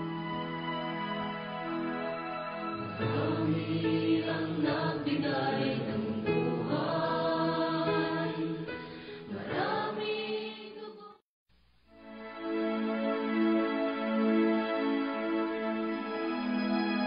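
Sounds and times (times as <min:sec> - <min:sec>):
choir singing held notes: 0:02.8 - 0:11.1.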